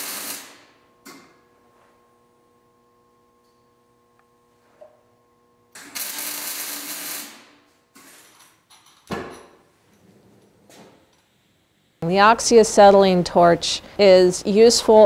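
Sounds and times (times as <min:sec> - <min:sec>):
welder arc crackling: 0:00.0 - 0:01.2, 0:05.7 - 0:07.7.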